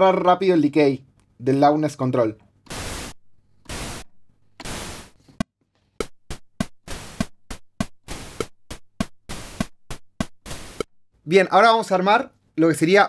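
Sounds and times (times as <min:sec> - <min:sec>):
synthesized hi-hat hits: 0:02.7 - 0:05.2, 0:06.9 - 0:10.9.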